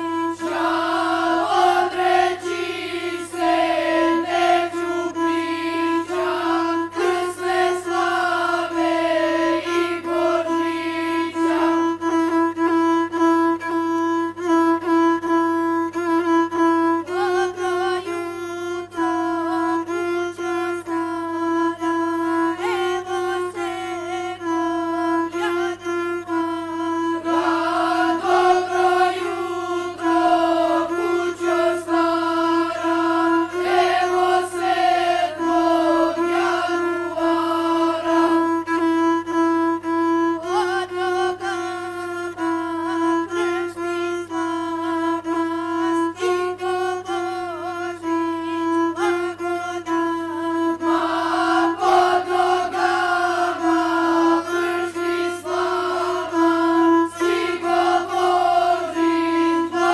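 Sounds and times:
person singing: 0.0 - 15.0, 16.9 - 59.9
bowed single-string fiddle: 0.0 - 59.9.

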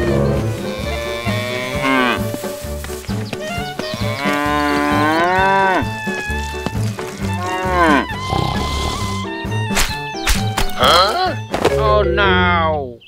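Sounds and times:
cow mooing: 0.0 - 2.2, 3.9 - 6.1, 7.1 - 9.2.

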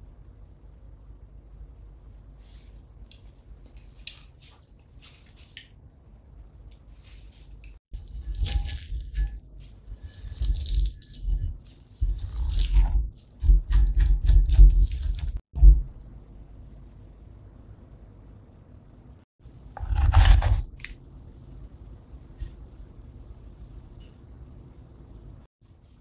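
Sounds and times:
spatula scraping ceramic mortar: 8.0 - 15.4, 19.8 - 20.6.

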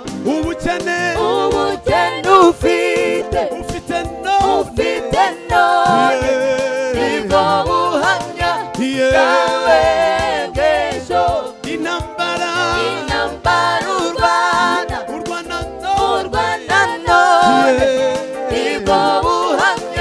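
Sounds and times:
backing music with a beat: 0.0 - 20.0
man singing: 0.2 - 1.4, 2.2 - 4.8, 5.8 - 8.1, 8.8 - 9.9, 11.7 - 13.0, 15.1 - 19.6.

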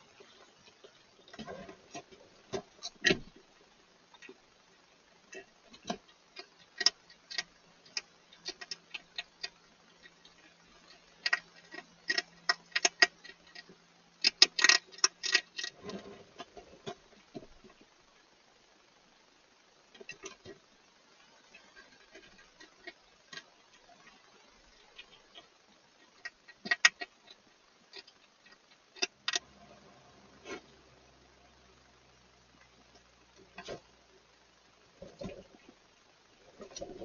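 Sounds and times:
hedgehog crunching food pellets: 5.2 - 17.9, 19.9 - 20.6, 21.2 - 29.8.

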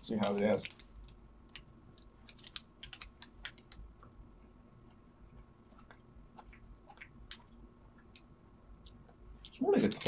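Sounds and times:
person chewing: 4.8 - 9.6.

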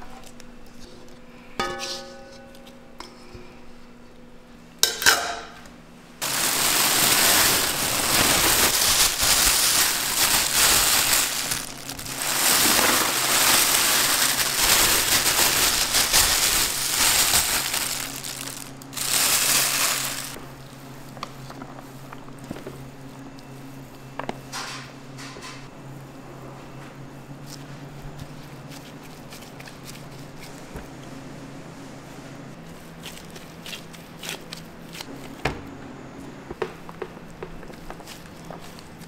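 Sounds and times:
plastic bag crinkling and rustling: 6.2 - 20.4.

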